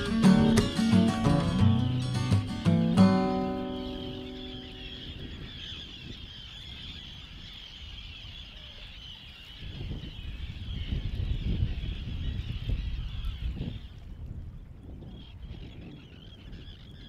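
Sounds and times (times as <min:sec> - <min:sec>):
guitar chord: 0:00.0 - 0:04.9
seabirds calling: 0:00.0 - 0:14.1, 0:14.7 - 0:17.0.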